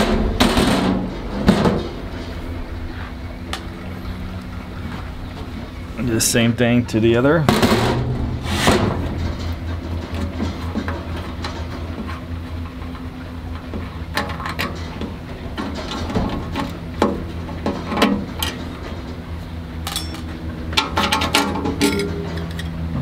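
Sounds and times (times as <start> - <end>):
metal knocks: 0.0 - 3.8, 7.4 - 12.1
steady low hum: 0.0 - 23.0
metal clicks and clinks: 19.8 - 20.3.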